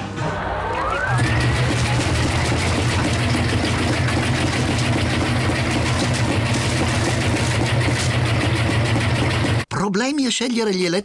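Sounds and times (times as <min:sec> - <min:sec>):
washing machine running: 0:00.8 - 0:09.7.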